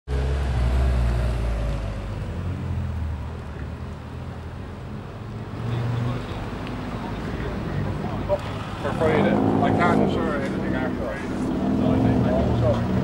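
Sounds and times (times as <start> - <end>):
car engine driving past: 5.4 - 13.0.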